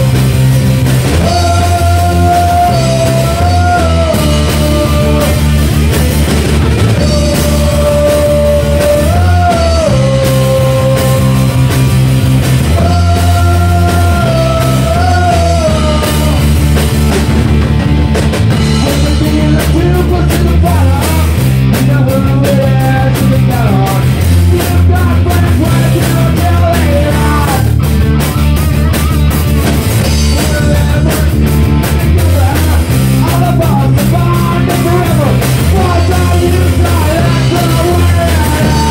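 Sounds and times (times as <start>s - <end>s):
rock band playing live: 0.0s - 38.9s.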